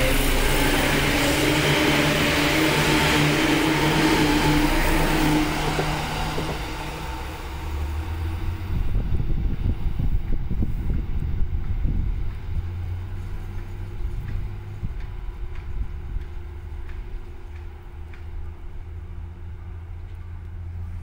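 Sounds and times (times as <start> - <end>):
electric train pulling away: 0.0 - 19.9
steady low rumble: 3.4 - 17.4.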